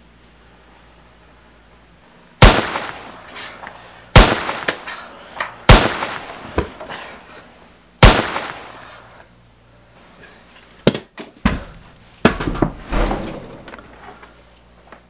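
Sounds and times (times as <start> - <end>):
gunshot: 2.4 - 3.1, 4.2 - 4.9, 5.7 - 6.3, 8.0 - 8.7.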